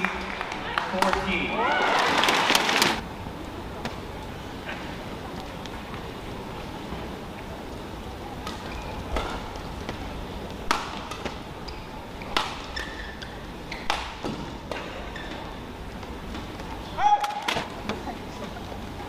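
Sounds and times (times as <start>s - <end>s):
shoes squeaking on court: 8.5s - 10.1s, 11.2s - 17.0s
racket hitting shuttlecock: 10.6s - 11.4s, 12.2s - 15.5s.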